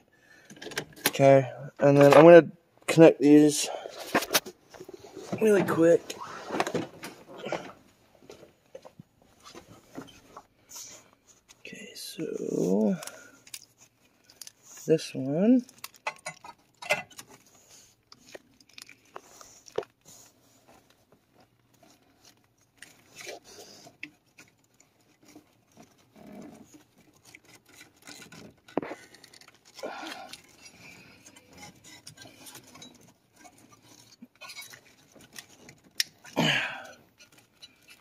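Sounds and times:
wires and plastic rustling: 0.0s - 38.0s.

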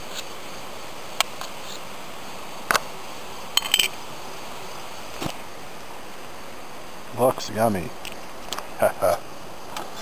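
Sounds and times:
steady background hiss: 0.0s - 10.0s.

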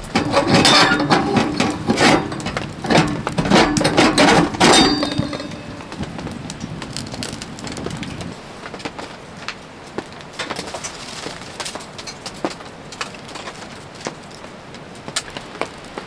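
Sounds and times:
metal lid-lifter clinking and scraping: 0.0s - 6.2s.

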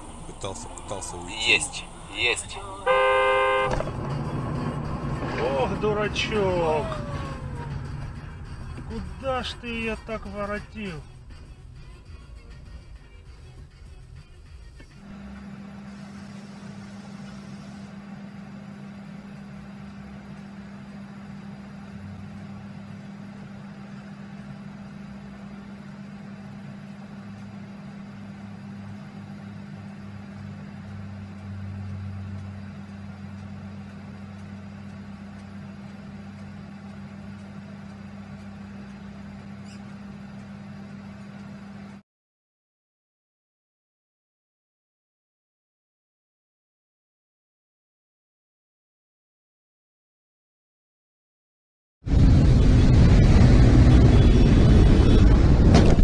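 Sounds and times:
deep rumble: 0.0s - 2.9s, 52.1s - 56.0s
steady low hum: 0.0s - 12.0s, 15.0s - 42.0s, 52.1s - 56.0s.

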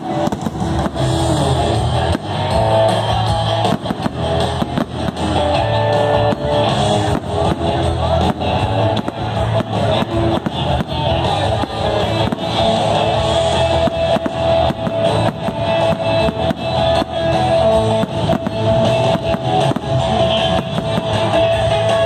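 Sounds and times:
fireworks bursting: 0.0s - 22.0s
loud rock music with drums: 0.0s - 22.0s.

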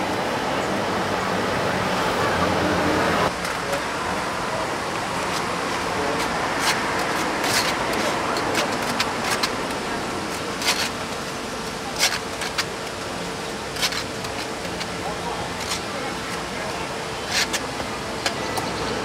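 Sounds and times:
busy street noise: 0.0s - 19.0s.

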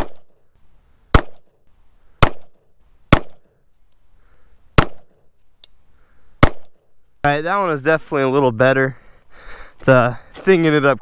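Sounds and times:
pistol shots: 0.0s - 0.3s, 1.1s - 1.5s, 2.2s - 3.5s, 4.8s - 5.2s, 6.4s - 6.8s.

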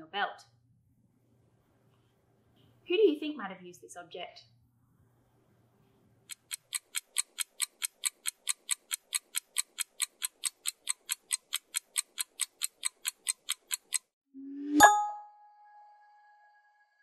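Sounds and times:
clock ticking: 6.3s - 14.1s.

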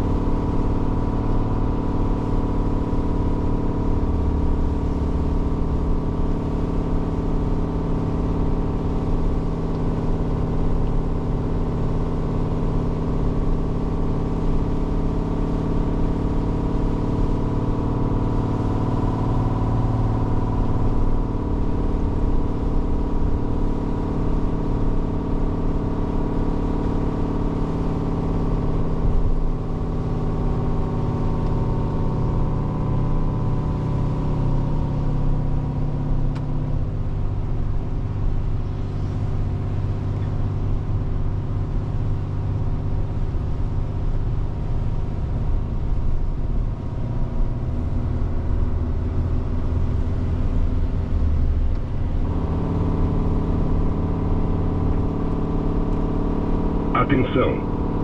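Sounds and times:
diesel truck engine running: 48.1s - 58.0s.

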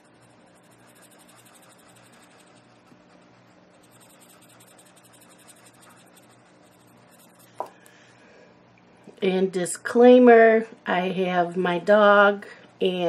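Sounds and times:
marker tip rubbing on paper: 0.0s - 7.6s
low steady hum: 0.0s - 13.0s.

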